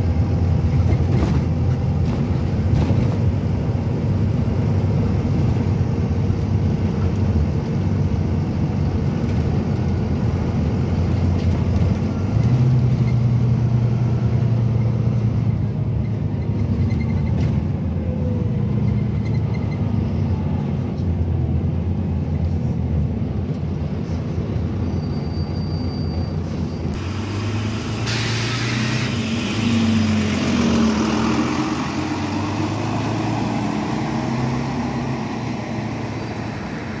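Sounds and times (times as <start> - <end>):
bus diesel engine running: 0.0 - 37.0
compressed air hiss: 27.0 - 29.9.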